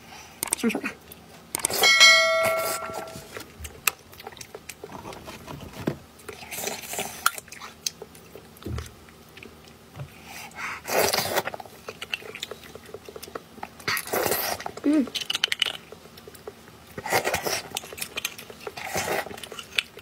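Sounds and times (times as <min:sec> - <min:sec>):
notification bell chime: 0:01.8 - 0:03.2
chewing: 0:03.3 - 0:05.6, 0:06.2 - 0:20.0.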